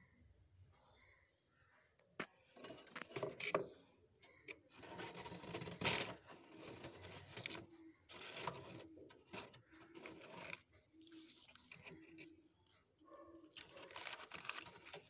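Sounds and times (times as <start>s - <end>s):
metal spoon scraping frost: 4.7s - 15.0s.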